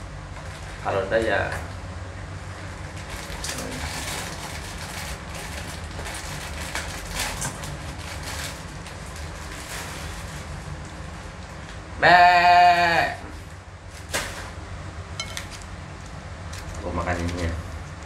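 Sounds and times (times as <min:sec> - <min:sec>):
plastic packet rustling: 0:03.0 - 0:10.8.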